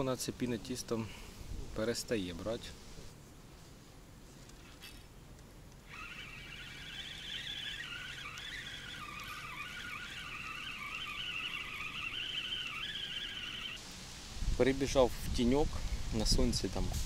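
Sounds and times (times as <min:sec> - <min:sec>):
fishing reel gear whine: 0:05.8 - 0:13.8.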